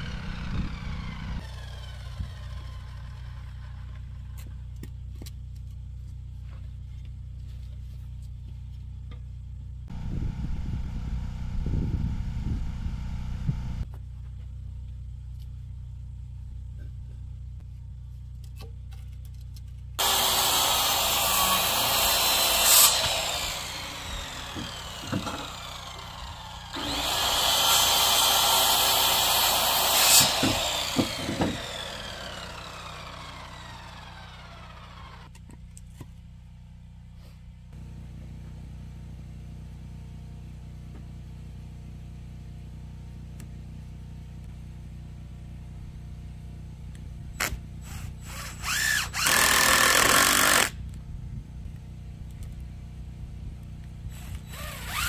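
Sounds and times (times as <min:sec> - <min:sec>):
power saw cutting wood: 0:00.0 - 0:04.4, 0:20.0 - 0:35.3, 0:47.4 - 0:50.8, 0:54.1 - 0:55.0
saw blade winding down: 0:00.0 - 0:04.4, 0:20.0 - 0:35.3, 0:47.4 - 0:50.8, 0:54.1 - 0:55.0
dull machine sound: 0:00.0 - 0:04.6, 0:20.0 - 0:35.4
steady low hum: 0:00.0 - 0:28.1.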